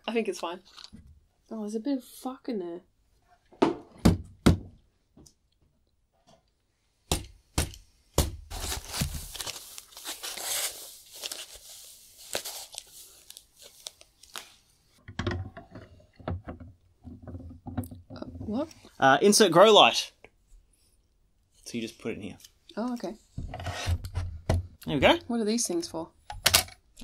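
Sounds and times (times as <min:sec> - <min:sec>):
packaging crinkling and tearing: 0:08.5 - 0:14.6.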